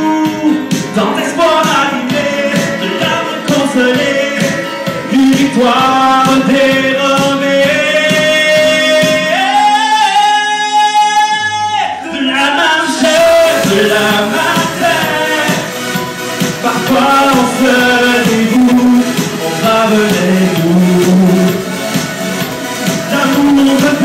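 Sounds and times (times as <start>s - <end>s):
backing music: 0.0s - 24.0s
man singing a long note: 16.6s - 21.7s.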